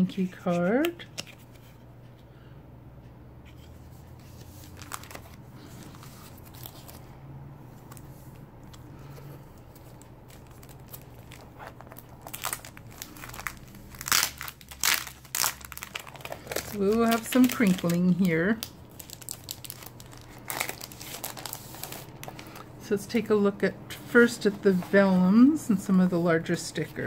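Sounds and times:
steady low hum: 0:00.0 - 0:27.0
paper rustling: 0:04.2 - 0:07.1, 0:07.7 - 0:22.7
plastic sleeve crinkling: 0:04.4 - 0:07.0, 0:07.8 - 0:22.8.

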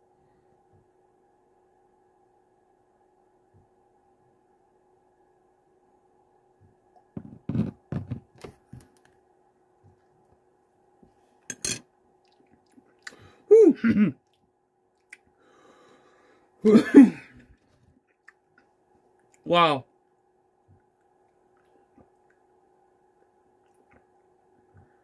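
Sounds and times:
man groaning in pain: 0:13.5 - 0:14.2.

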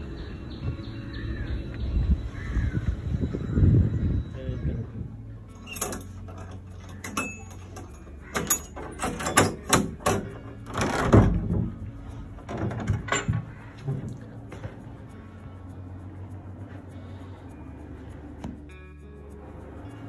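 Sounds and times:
key turning in metal door lock: 0:05.5 - 0:11.6, 0:12.4 - 0:14.0
heavy wooden door opening: 0:05.6 - 0:14.7.

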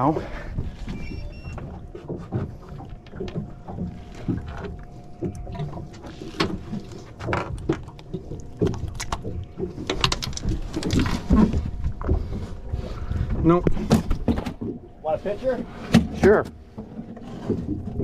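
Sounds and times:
low rumble of water and wind: 0:00.0 - 0:18.0.

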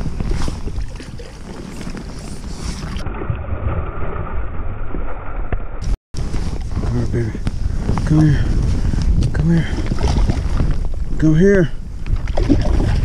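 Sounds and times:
clothing rubbing on microphone: 0:00.0 - 0:03.0, 0:06.2 - 0:09.2
wind rumble on microphone: 0:00.0 - 0:13.0.

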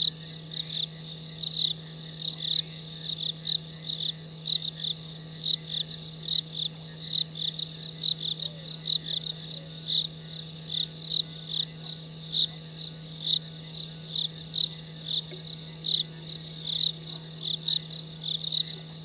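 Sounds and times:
crickets chirping: 0:00.0 - 0:19.0
steady low hum: 0:00.0 - 0:19.0.

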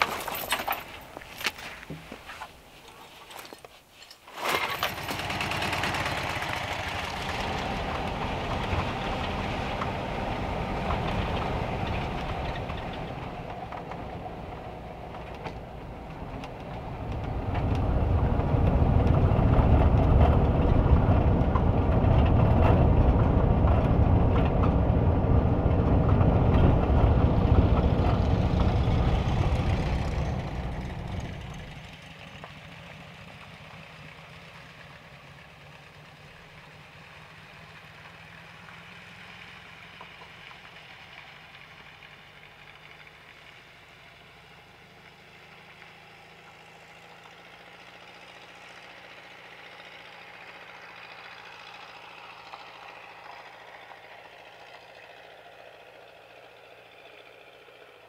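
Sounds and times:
van engine running: 0:04.6 - 0:58.0.

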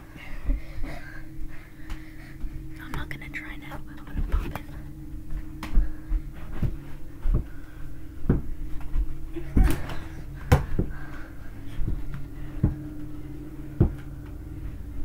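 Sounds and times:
steady low hum: 0:00.0 - 0:15.0
bodies bumping: 0:04.2 - 0:14.8
feet on the floor: 0:05.2 - 0:14.8.

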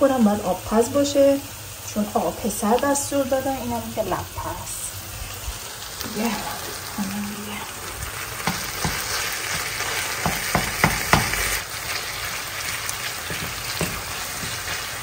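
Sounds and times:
meat and onions sizzling: 0:00.0 - 0:15.0
spatula tapping and scraping pan: 0:08.4 - 0:11.6, 0:13.0 - 0:15.0.

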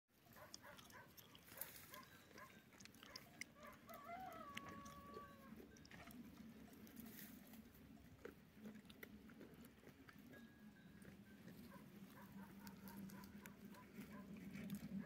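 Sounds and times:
rooster crowing faintly: 0:03.6 - 0:05.6.

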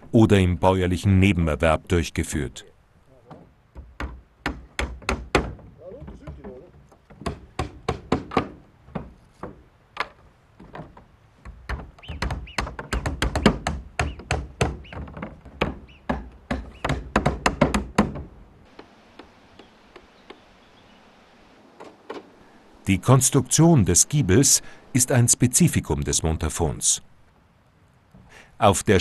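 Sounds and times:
hammer nailing shingles: 0:03.3 - 0:20.4.

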